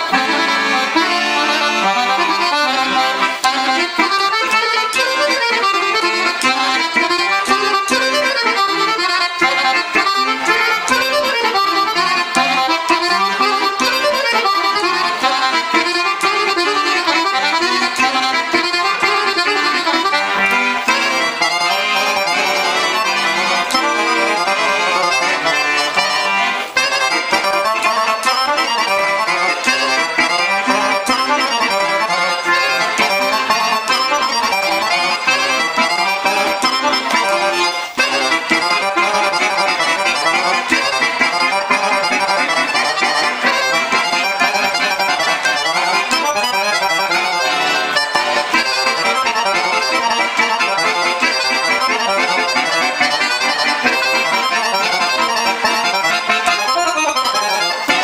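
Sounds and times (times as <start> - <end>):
piano accordion playing lively tune: 0.0 - 58.0.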